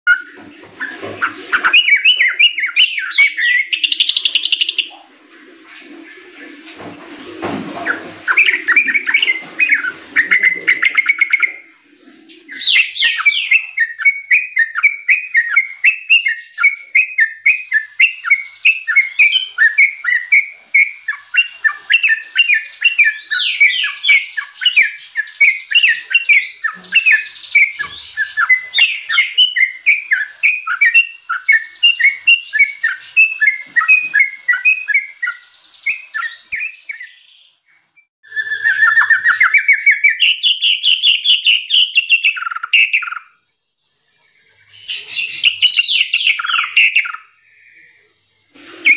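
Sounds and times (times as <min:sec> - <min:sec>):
bird chirping song: 0:00.1 - 0:06.6, 0:07.7 - 0:48.9.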